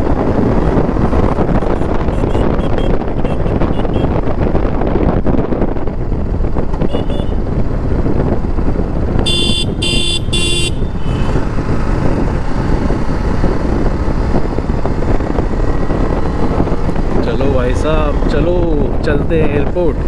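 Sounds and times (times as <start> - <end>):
motorcycle engine running: 0.0 - 20.0
wind rush on microphone: 0.0 - 20.0
horn tooting: 1.6 - 4.2, 6.8 - 7.4, 9.2 - 11.5.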